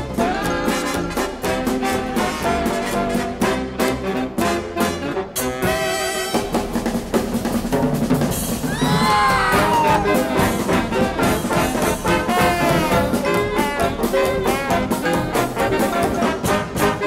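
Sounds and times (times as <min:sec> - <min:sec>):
drum roll: 0:00.0 - 0:17.0
fast jazz band music: 0:00.0 - 0:17.0.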